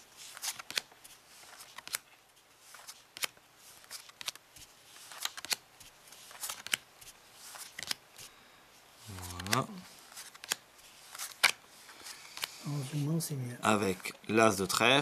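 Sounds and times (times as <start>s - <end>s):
playing cards snapping: 0.4s - 0.9s, 2.8s - 4.4s, 5.0s - 5.6s, 6.3s - 6.8s, 7.5s - 8.0s, 9.1s - 11.6s.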